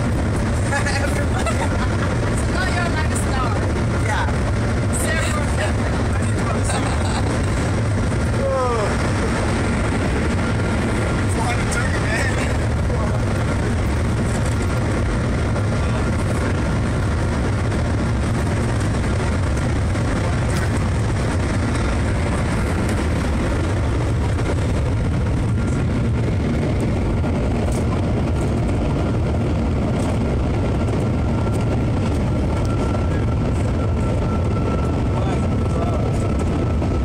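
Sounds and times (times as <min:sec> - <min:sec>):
faint steady whine: 0:00.0 - 0:37.0.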